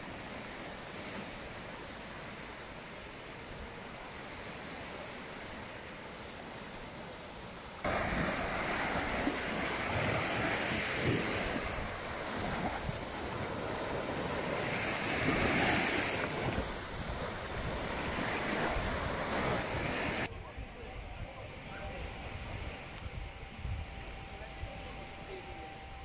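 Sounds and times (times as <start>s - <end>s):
waves washing onto sand: 0.0s - 20.3s
wind buffeting microphone: 7.9s - 25.2s.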